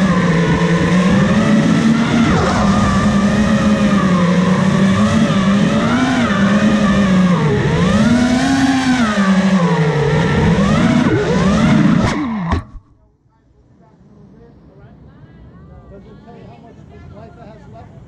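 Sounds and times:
drone motors and propellers buzzing: 0.0 - 13.0.

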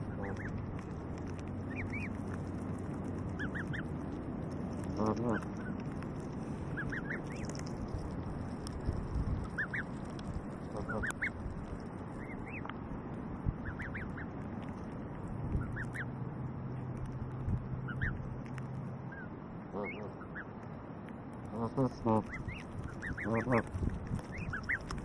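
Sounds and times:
goslings peeping: 0.0 - 12.8, 13.4 - 20.6, 21.4 - 25.0
adult goose call: 0.1 - 0.5, 10.7 - 11.3, 19.7 - 20.4, 21.5 - 23.6.

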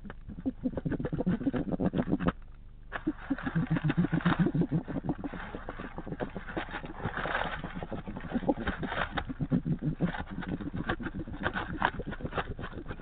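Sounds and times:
small animal stuttering noises: 0.0 - 13.0
rustling in dry bedding: 3.0 - 13.0.

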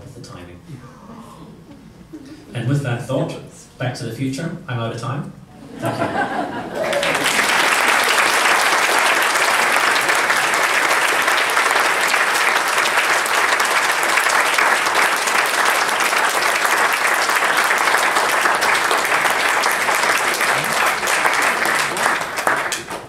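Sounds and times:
audience applauding: 5.8 - 23.0.

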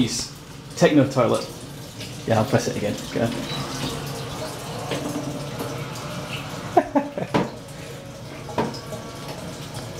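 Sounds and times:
water running into toilet cistern: 0.0 - 9.9.

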